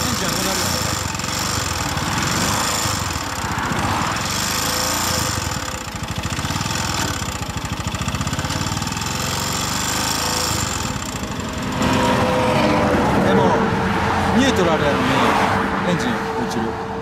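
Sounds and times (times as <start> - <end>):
motorcycle engine idling with rattle: 0.0 - 12.4.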